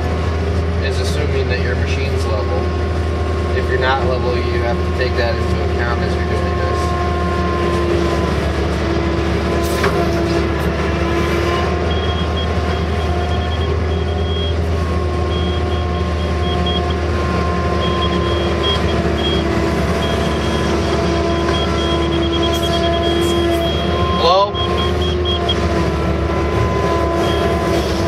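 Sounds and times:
excavator engine and hydraulics: 0:00.0 - 0:28.0
high thin tone: 0:11.2 - 0:25.6.

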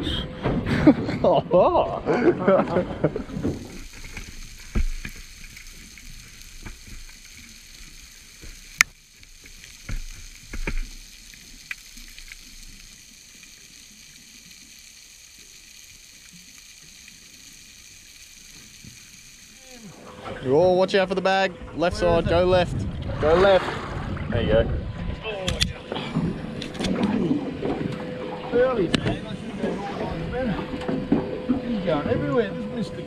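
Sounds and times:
underwater crackling hiss: 0:02.5 - 0:20.3.

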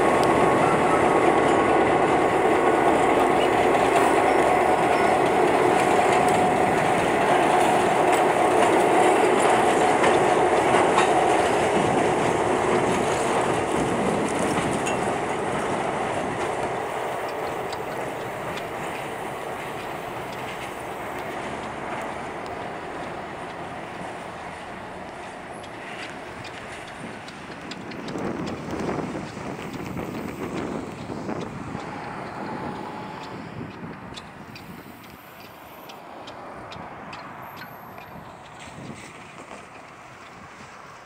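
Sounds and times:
train wheels clattering over rails: 0:00.0 - 0:41.0
faint steady squeal: 0:31.7 - 0:33.6.

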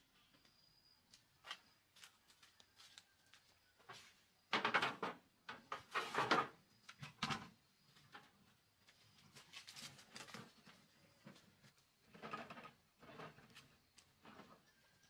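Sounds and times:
wheelbarrow rolling over grass: 0:03.9 - 0:15.0
plastic bucket scraping metal tray: 0:05.7 - 0:07.2.

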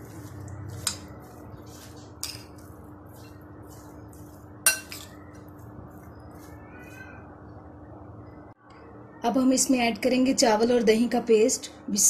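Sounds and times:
spoon stirring mash: 0:00.0 - 0:07.1
spoon clinking on glass: 0:04.7 - 0:05.2.

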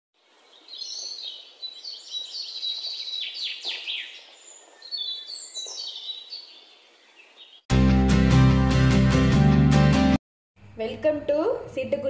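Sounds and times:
small songbird singing: 0:00.2 - 0:07.7.

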